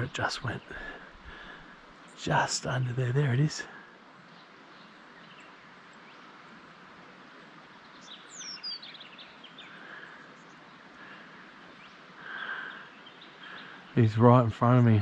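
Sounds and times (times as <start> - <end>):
stream flowing: 0.0 - 15.0
bird whistle and chirps: 8.0 - 9.0.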